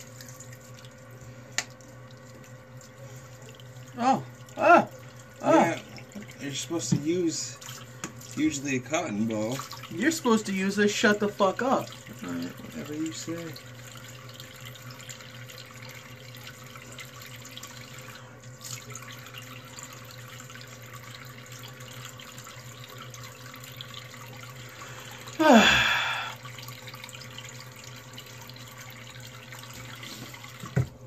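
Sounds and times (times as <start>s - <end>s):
tap running: 1.5s - 3.6s, 4.4s - 10.5s, 28.5s - 31.0s
person groaning: 4.0s - 5.8s, 25.4s - 26.4s.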